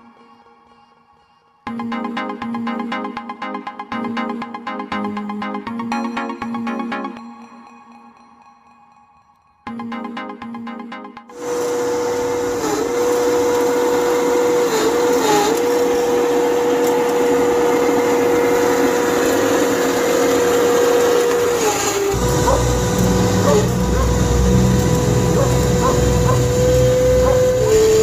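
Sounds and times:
electric motors whining: 11.4s - 28.0s.

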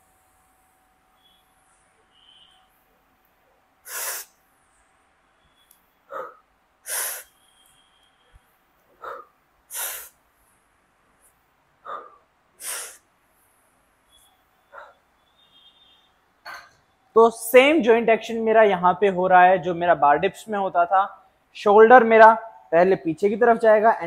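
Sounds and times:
man exhaling forcefully: 9.0s - 10.2s, 11.9s - 13.0s.

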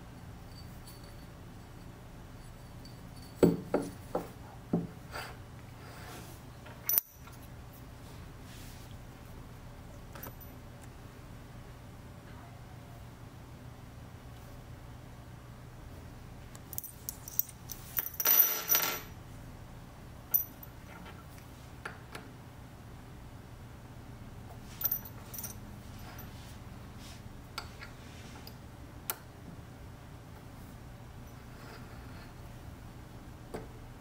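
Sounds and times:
steel pins clinking on metal: 6.8s - 7.4s, 16.6s - 19.2s, 20.3s - 20.8s.

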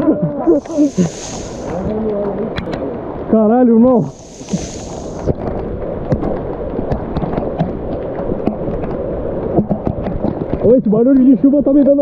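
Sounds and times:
heavy rain on foliage: 0.2s - 2.5s, 4.1s - 5.3s
brief high hiss: 0.5s - 1.9s, 4.0s - 5.3s.

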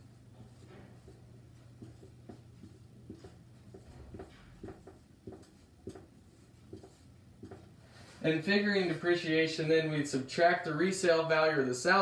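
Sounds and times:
faint low hum: 0.0s - 12.0s
marker writing on whiteboard: 0.4s - 7.7s.

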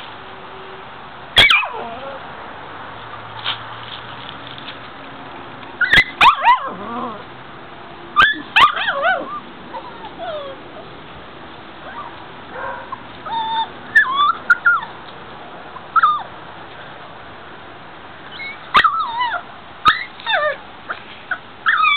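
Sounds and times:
puppies whimpering and yipping: 1.4s - 2.3s, 5.8s - 7.3s, 8.2s - 10.9s, 11.8s - 12.2s, 12.9s - 15.0s, 15.8s - 16.3s, 18.3s - 21.9s.

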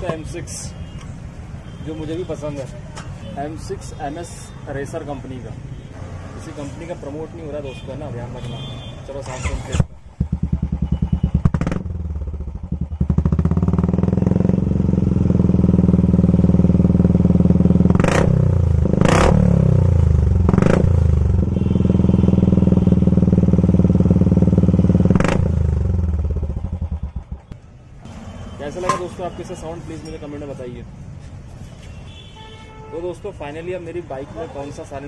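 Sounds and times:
motorcycle engine revving: 9.2s - 28.3s.

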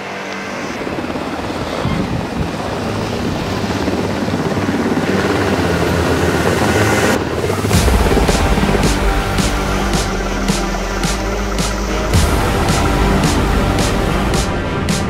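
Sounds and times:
helicopter rotor and turbine: 0.0s - 15.0s.

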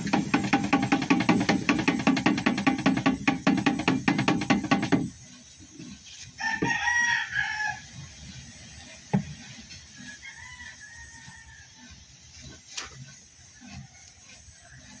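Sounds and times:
rooster crowing: 6.4s - 7.9s, 10.0s - 11.9s.

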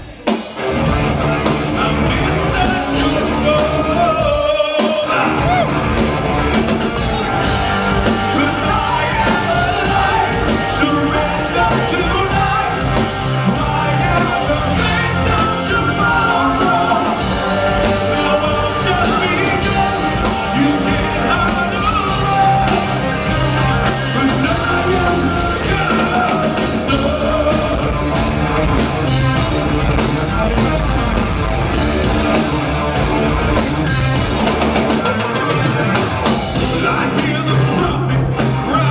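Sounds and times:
live rock band: 0.0s - 38.9s
man singing: 1.7s - 5.8s, 7.4s - 28.1s, 36.6s - 38.9s.

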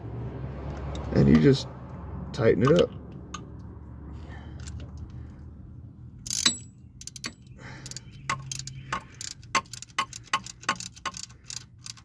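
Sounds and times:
socket ratchet clicking: 6.2s - 12.0s.

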